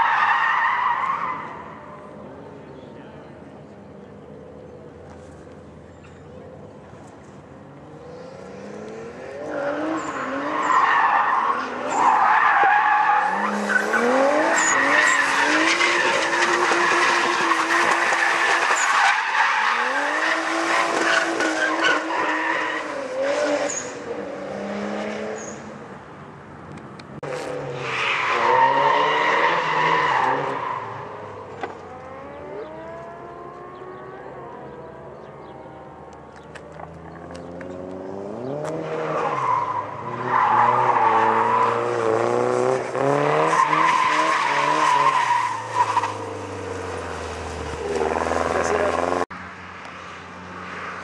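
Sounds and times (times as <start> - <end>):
car engine revving: 27.2 - 35.5, 36.7 - 49.3.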